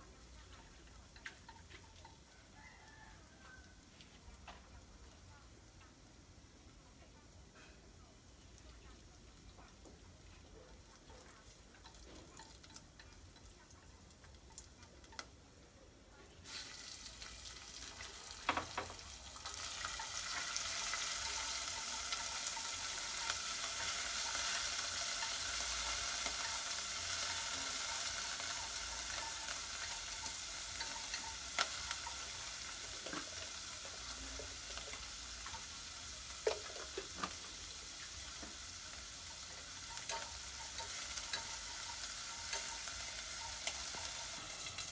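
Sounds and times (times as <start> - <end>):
food sizzling in hot oil: 0.0 - 44.9
chopsticks tapping a pot: 18.4 - 35.7, 39.2 - 44.8.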